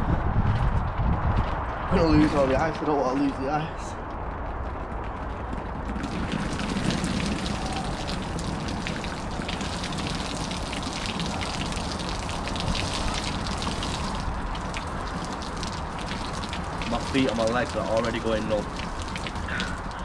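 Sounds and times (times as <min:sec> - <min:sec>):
water splattering onto paving: 0:05.9 - 0:20.0.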